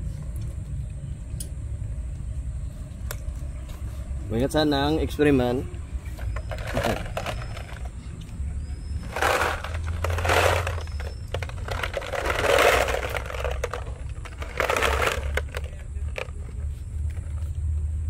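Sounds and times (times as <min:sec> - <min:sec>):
low steady rumble: 0:05.6 - 0:18.0
plastic bottle crinkling: 0:06.2 - 0:07.9, 0:09.0 - 0:16.5
candies rattling in bottle: 0:06.2 - 0:08.0, 0:09.0 - 0:16.6.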